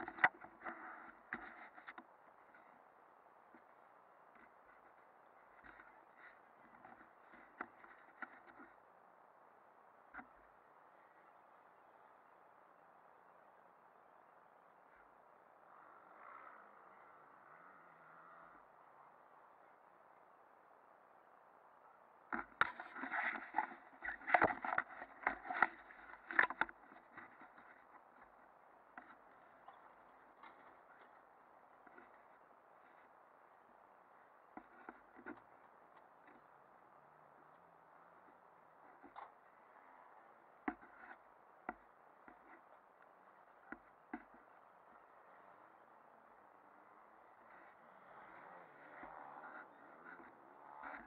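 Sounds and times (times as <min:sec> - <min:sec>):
sharp knocks and clicks: 0:22.3 - 0:28.1.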